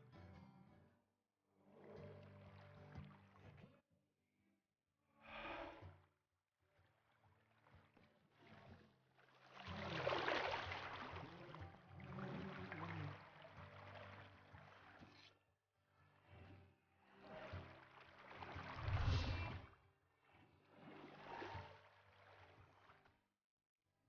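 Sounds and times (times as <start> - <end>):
river water splashing: 9.4 - 15.1, 17.3 - 19.7, 20.8 - 23.0.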